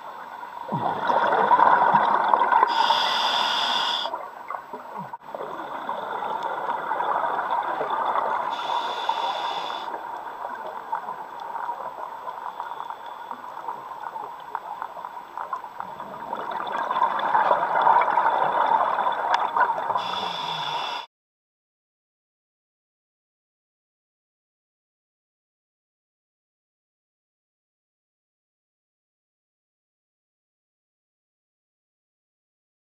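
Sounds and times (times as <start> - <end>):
exhaled bubbles rushing underwater: 0.6 - 3.2, 4.1 - 8.6, 13.4 - 20.1
regulator inhale hiss: 2.7 - 4.1, 8.5 - 10.0, 20.0 - 21.1.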